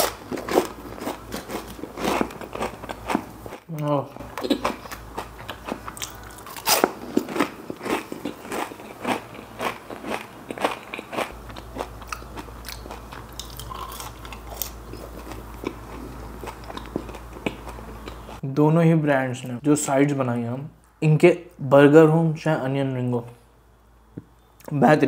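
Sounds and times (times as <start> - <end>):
crunchy chewing: 0.0 - 18.4.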